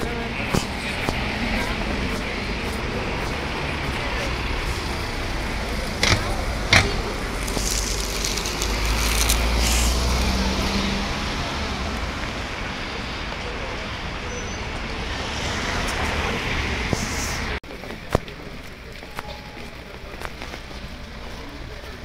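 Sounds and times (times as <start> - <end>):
cars running past: 0.0 - 17.6
low engine rumble: 0.0 - 22.0.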